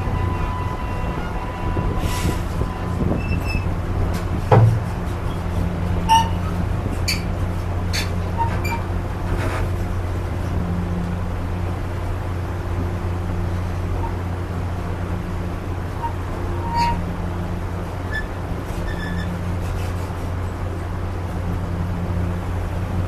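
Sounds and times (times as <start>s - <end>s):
train wheels rumbling on rail: 0.0s - 23.0s
metallic clanks and rattles: 4.2s - 5.5s.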